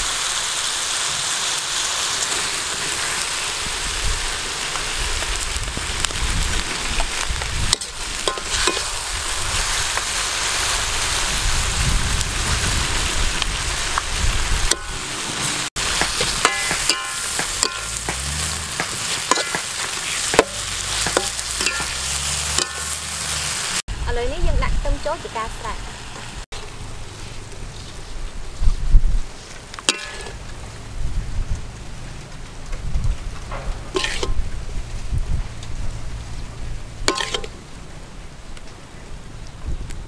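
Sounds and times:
vegetables sizzling in a wok: 0.0 - 31.4, 33.7 - 37.7
metal spatula scraping a pan: 6.9 - 10.1, 14.7 - 23.8, 29.9 - 30.5, 33.9 - 34.4, 37.0 - 37.6.

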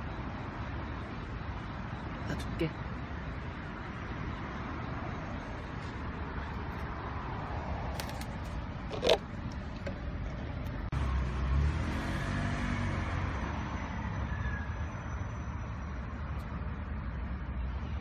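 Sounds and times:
road traffic rumble: 0.0 - 18.0
vehicle engine passing: 10.9 - 13.4.

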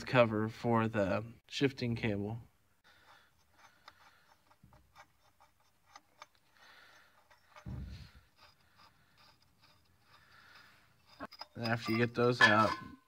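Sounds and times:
clicks of hands and tools: 3.2 - 7.7.

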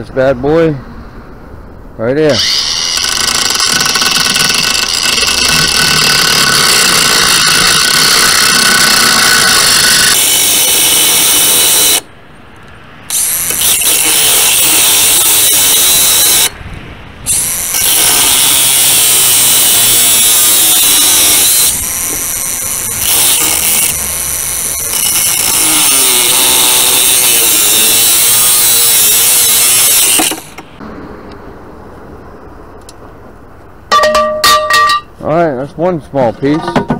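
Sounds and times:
angle grinder cutting steel pipe: 2.3 - 12.1, 13.1 - 16.5, 17.3 - 30.6.

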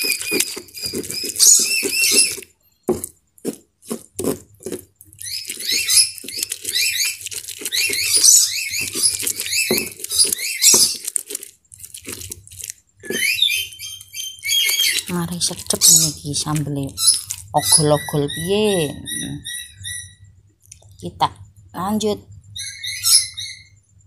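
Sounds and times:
stone pestle scraping in mortar: 0.0 - 12.4.

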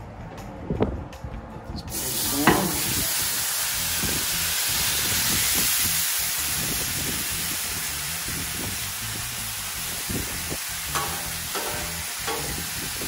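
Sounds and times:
potatoes sizzling on a griddle: 1.9 - 13.0
metal spatula scraping griddle: 11.0 - 12.7.

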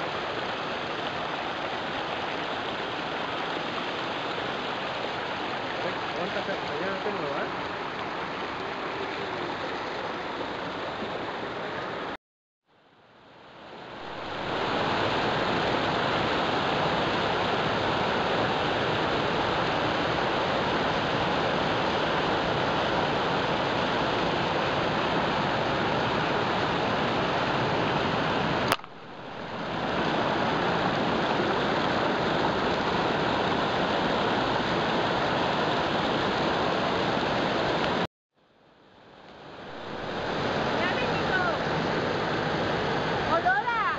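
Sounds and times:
stream rushing over rocks: 0.0 - 12.2, 13.0 - 38.1, 38.9 - 43.9.

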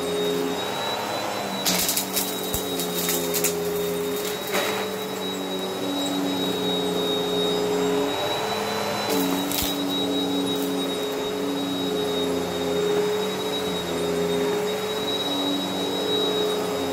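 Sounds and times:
vacuum cleaner motor whine: 0.0 - 16.9
debris crackling in vacuum: 1.6 - 5.0.

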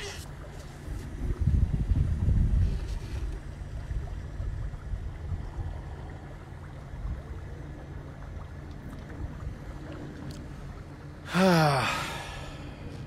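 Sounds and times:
water and air noise: 0.0 - 13.0
boat motor humming: 2.1 - 13.0.

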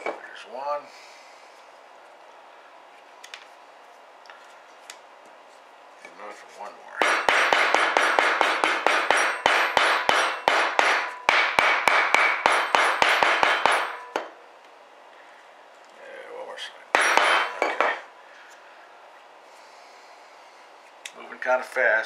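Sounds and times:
hammer tapping metal punch: 7.0 - 14.3, 17.0 - 18.0.

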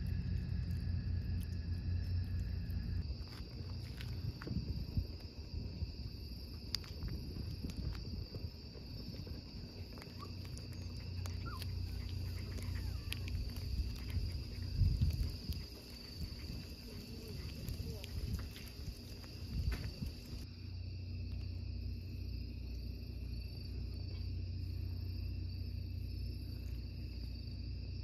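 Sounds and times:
crickets trilling: 0.0 - 28.0
wind on microphone: 4.0 - 10.6, 11.3 - 20.4.

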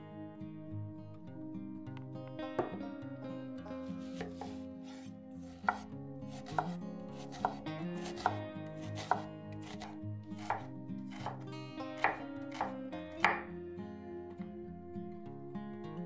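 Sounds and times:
knife chopping on cutting board: 4.0 - 11.4, 12.0 - 13.5.

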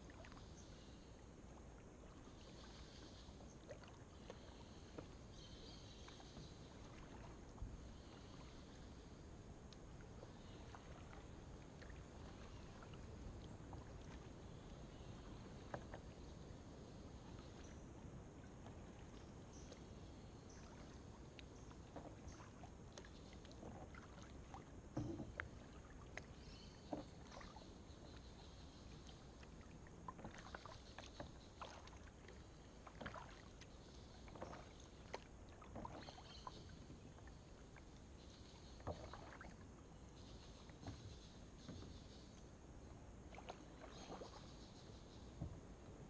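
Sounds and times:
paddle splashes and drips: 0.0 - 46.0.

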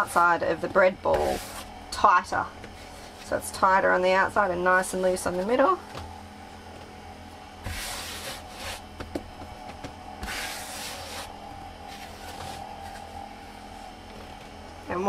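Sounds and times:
dough scraping on cutting board: 1.0 - 1.7, 7.6 - 9.1, 10.2 - 13.0.

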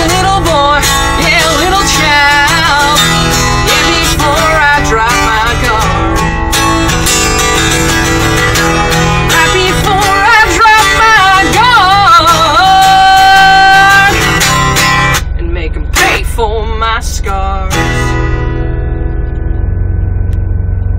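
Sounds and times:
woman singing: 0.0 - 6.0, 9.3 - 14.3, 15.2 - 17.9
strummed acoustic guitar: 0.0 - 20.9.

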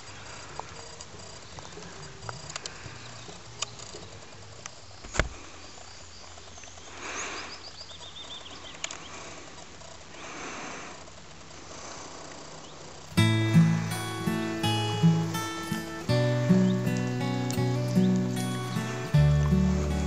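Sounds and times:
bird chirping: 12.6 - 20.0.

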